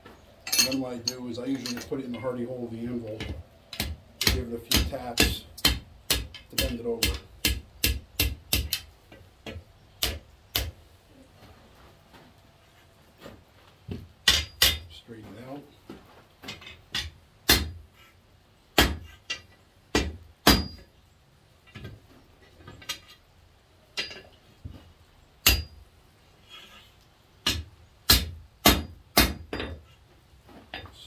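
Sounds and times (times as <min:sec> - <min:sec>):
hammer striking hot steel on anvil: 0:03.2 - 0:10.8, 0:14.2 - 0:14.9, 0:16.9 - 0:17.8, 0:18.8 - 0:20.8, 0:25.4 - 0:25.8, 0:27.4 - 0:29.8.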